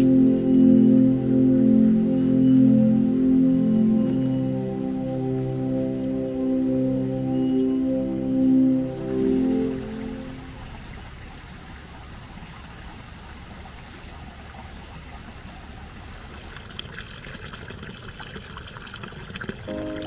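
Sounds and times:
water trickling and rushing: 7.9 - 20.0.

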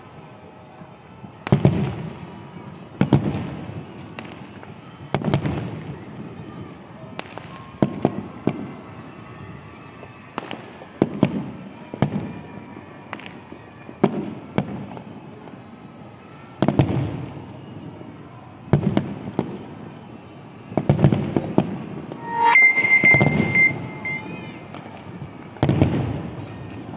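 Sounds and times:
low rolling echo: 22.2 - 24.7.

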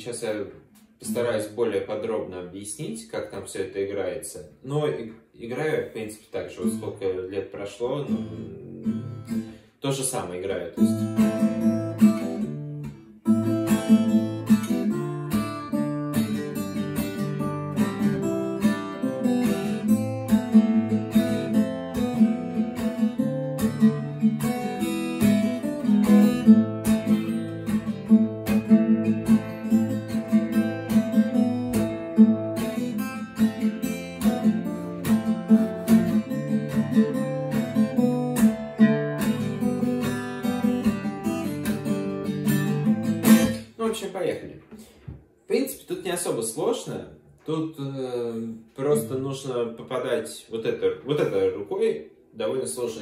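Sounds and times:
acoustic guitar playing: 5.9 - 43.8.

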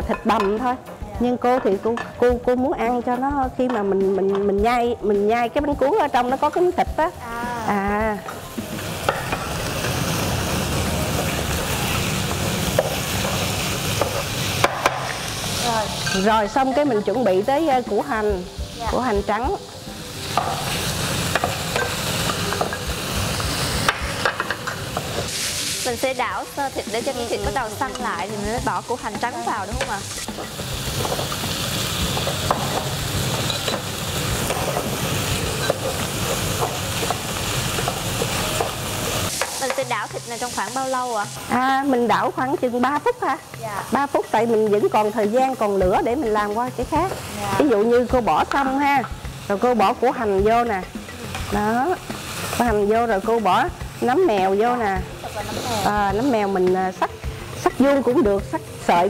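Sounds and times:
food sizzling in oil: 0.0 - 59.0.

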